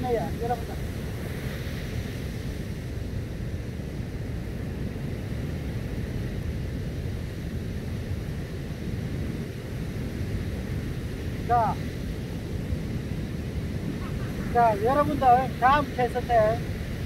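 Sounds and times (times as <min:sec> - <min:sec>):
surf washing: 0:00.0 - 0:17.0
wind buffeting microphone: 0:00.0 - 0:17.0.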